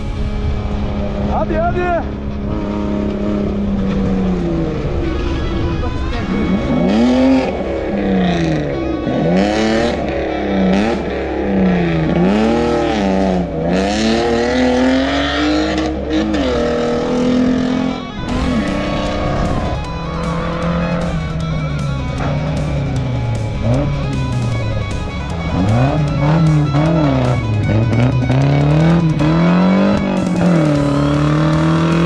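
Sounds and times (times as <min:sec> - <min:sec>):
music: 0:00.0 - 0:02.5, 0:04.2 - 0:32.0
rally car engine revving: 0:00.0 - 0:32.0.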